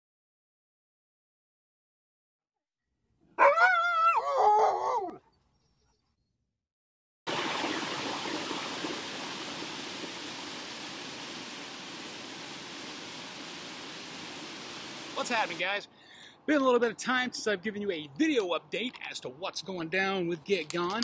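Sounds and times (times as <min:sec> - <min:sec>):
dog howling: 0:03.4 - 0:05.2
whitewater rushing: 0:07.3 - 0:15.7.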